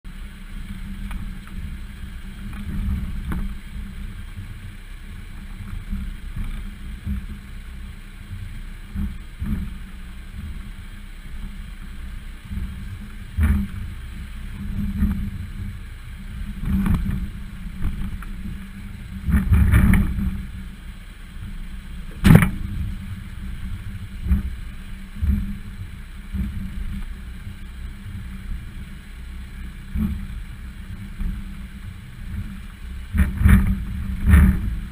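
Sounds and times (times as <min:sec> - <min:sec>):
vehicle rumble on rocky trail: 0:00.0 - 0:34.9
knocks and jolts over rocks: 0:22.0 - 0:22.8.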